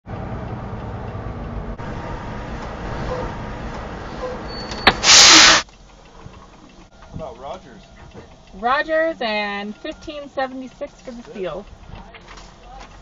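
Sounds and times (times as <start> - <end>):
diesel truck engine running: 0.0 - 13.0
air brake hiss: 4.5 - 5.7.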